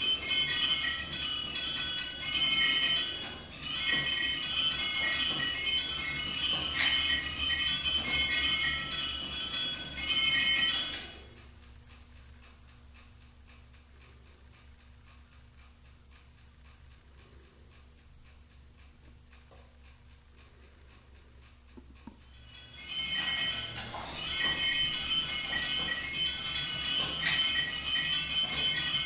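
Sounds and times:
clock bells ringing rapidly: 0.0 - 11.5, 22.2 - 29.0
faint clock ticking: 11.0 - 29.0.

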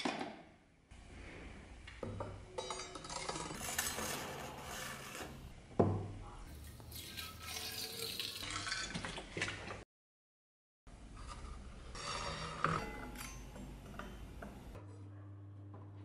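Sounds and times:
liquid pouring into pipe: 6.5 - 9.0.

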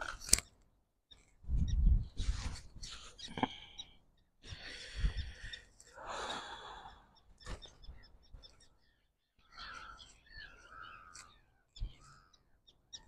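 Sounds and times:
wind buffeting microphone: 1.4 - 3.0, 4.8 - 5.6.

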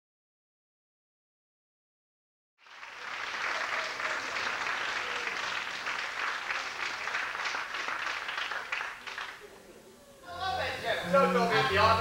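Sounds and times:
audience applauding: 2.6 - 9.7.

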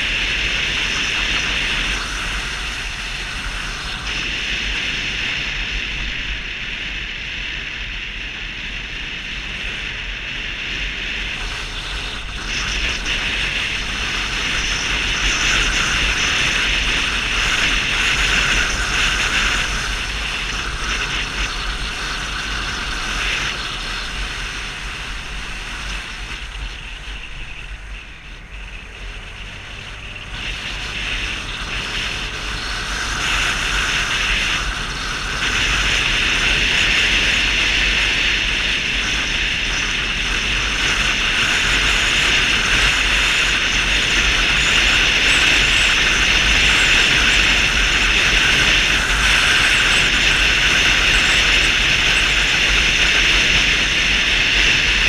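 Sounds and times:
scooter and road rumble: 0.0 - 55.0
wind rushing over microphone: 0.0 - 55.0.

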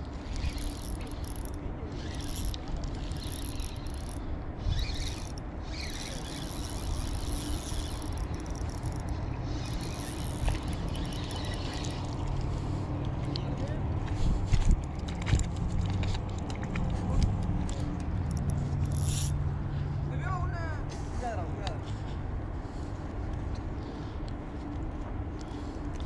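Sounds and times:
wind buffeting microphone: 0.0 - 19.7.

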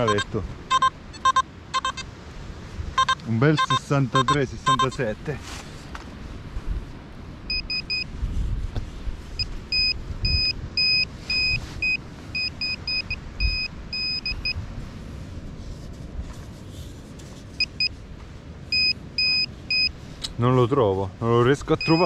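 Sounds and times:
metal detector short high beeps: 0.0 - 2.1, 3.0 - 5.0, 9.4 - 14.6, 18.7 - 19.9, 21.8 - 22.0.

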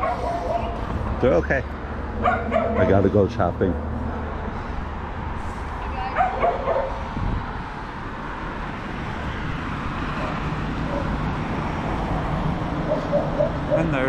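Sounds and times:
dogs barking and yipping: 0.0 - 1.0, 2.1 - 3.1, 6.1 - 7.1, 10.0 - 11.9, 12.6 - 14.0
low rumble of street noise: 0.0 - 14.0.

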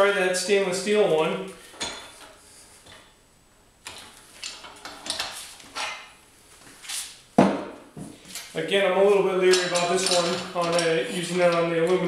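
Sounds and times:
metal clinks and clanks: 9.5 - 11.0.

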